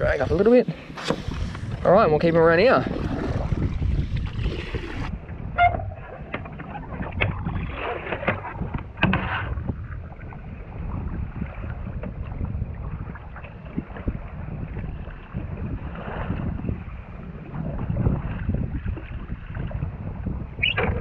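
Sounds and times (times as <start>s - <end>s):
rush of wind and water: 0.0s - 21.0s
paddle strokes splashing: 0.3s - 1.9s, 2.6s - 20.0s.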